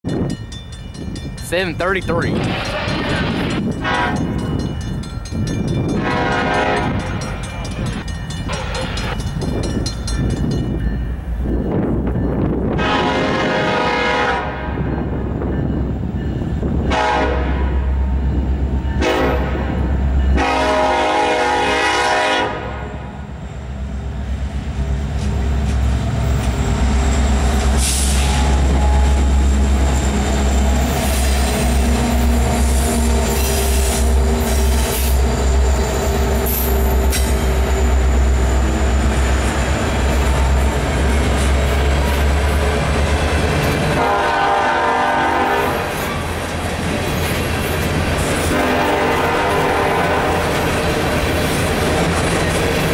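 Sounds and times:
diesel locomotives rumbling past: 0:00.0 - 0:52.9
locomotive air horn blasts: 0:03.8 - 0:04.3, 0:06.0 - 0:07.1, 0:12.7 - 0:14.8, 0:16.9 - 0:18.0, 0:19.0 - 0:19.7, 0:20.3 - 0:22.9, 0:27.8 - 0:29.4, 0:43.9 - 0:46.0, 0:48.5 - 0:50.6.

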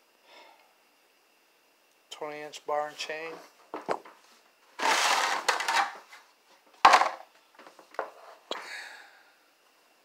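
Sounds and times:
plastic cover scraping off: 0:04.8 - 0:06.1.

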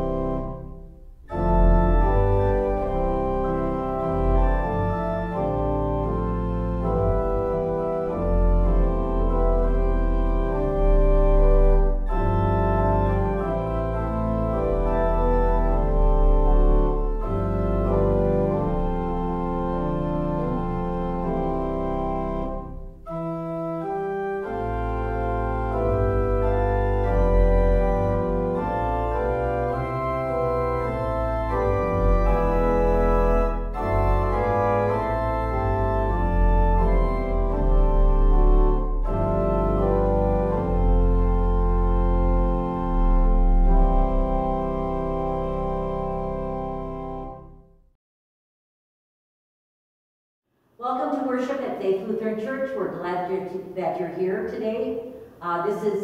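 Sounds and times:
organ playing sustained chords: 0:00.0 - 0:47.7.

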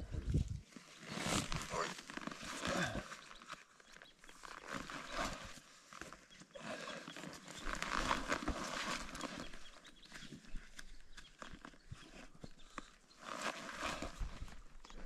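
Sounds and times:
footsteps crunching on trail: 0:07.0 - 0:15.0.

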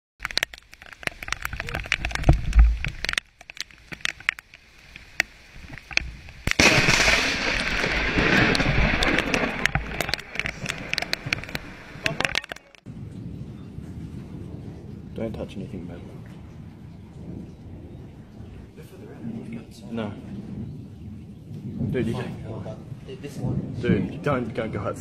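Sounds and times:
small clicks: 0:00.2 - 0:06.6, 0:07.6 - 0:12.8
loud crackling noise: 0:00.2 - 0:20.6
wind buffeting microphone: 0:01.0 - 0:25.0
lightning crack: 0:05.5 - 0:25.0.

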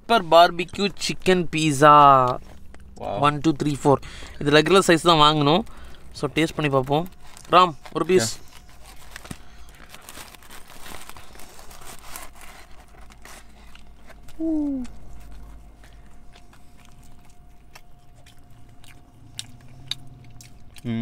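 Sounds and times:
biting and chewing: 0:00.5 - 0:21.0
cardboard box crinkling: 0:07.0 - 0:14.2.

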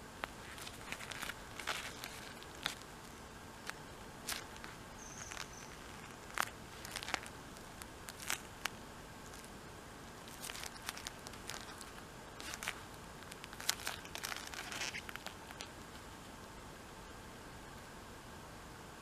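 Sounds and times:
gloved hands handling binoculars: 0:00.2 - 0:09.5, 0:10.3 - 0:16.1.

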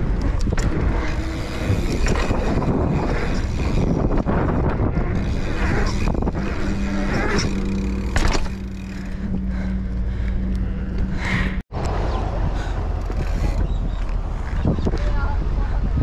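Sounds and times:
wind rush on microphone: 0:00.0 - 0:07.8, 0:11.1 - 0:16.0
bicycle rolling hum: 0:00.0 - 0:16.0.

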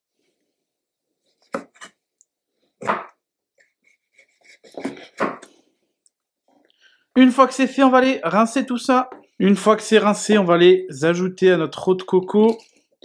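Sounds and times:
knife cutting coconut on plastic board: 0:01.5 - 0:02.0.

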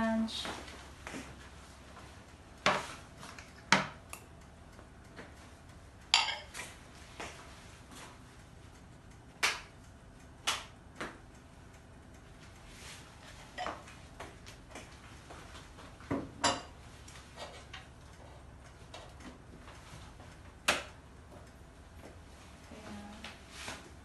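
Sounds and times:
ceramic plates clinking on table: 0:06.2 - 0:06.5.

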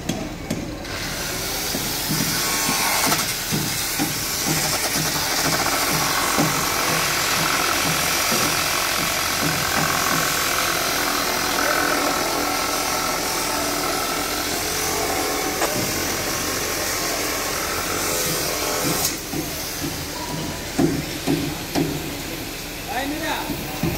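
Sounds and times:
construction machinery noise: 0:00.0 - 0:23.9
power tool whine: 0:01.1 - 0:19.4.

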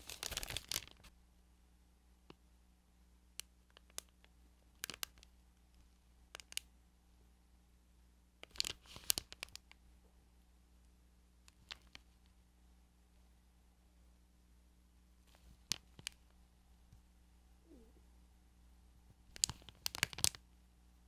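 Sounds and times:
plastic bag crinkling: 0:00.0 - 0:01.1, 0:08.5 - 0:09.6, 0:19.4 - 0:20.4.

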